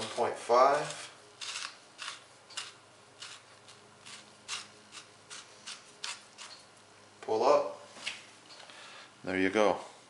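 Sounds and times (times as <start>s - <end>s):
corer blade scraping tomato: 0.0s - 6.7s.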